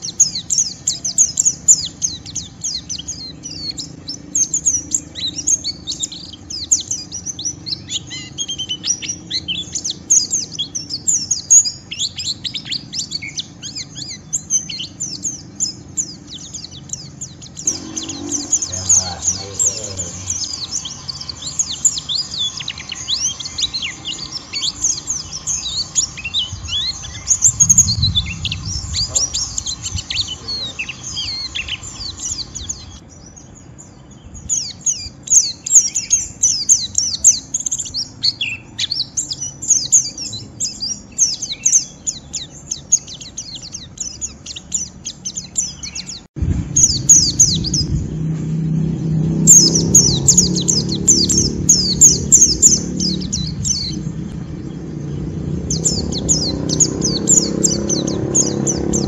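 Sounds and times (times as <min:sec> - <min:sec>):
birds chattering in rapid chirps: 0:00.0 - 0:59.0
low bump: 0:46.4 - 0:49.6.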